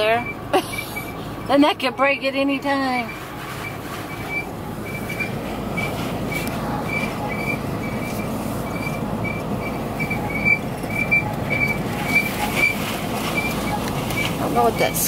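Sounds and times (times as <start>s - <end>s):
tyre and engine noise: 0.0s - 15.0s
high-pitched squeak repeating: 0.2s - 1.5s, 3.0s - 12.8s.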